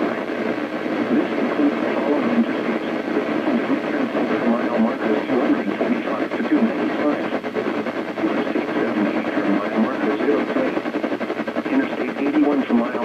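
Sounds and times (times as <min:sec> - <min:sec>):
muffled broadcast voice: 0:00.0 - 0:13.0
radio static hiss: 0:00.0 - 0:13.0.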